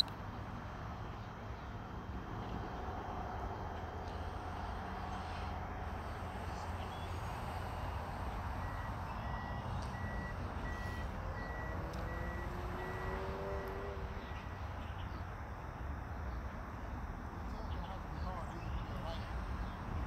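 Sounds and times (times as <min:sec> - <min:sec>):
repeating electronic beep: 0:06.1 - 0:14.6.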